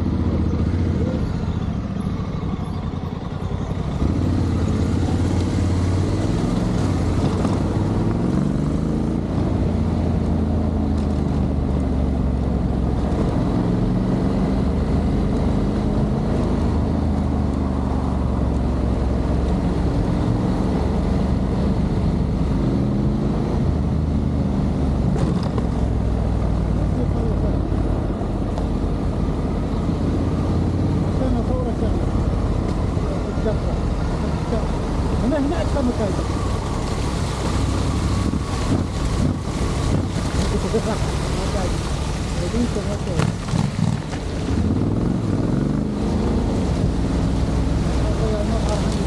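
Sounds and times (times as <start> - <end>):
motorcycle engine running: 38.2 - 46.6.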